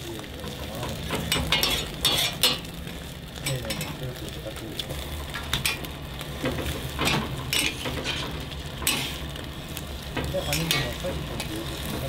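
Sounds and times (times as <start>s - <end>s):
metal spatulas scraping on griddle: 0.8s - 2.7s, 5.5s - 9.4s, 10.1s - 12.0s.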